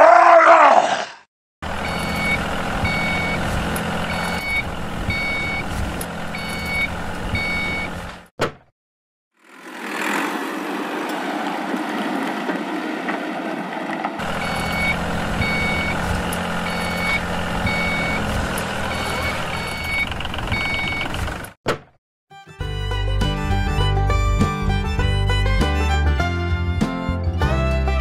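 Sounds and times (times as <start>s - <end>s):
low engine rumble: 1.6s - 8.2s, 9.6s - 21.6s
reversing alarm beeping: 1.7s - 8.0s, 14.2s - 21.3s.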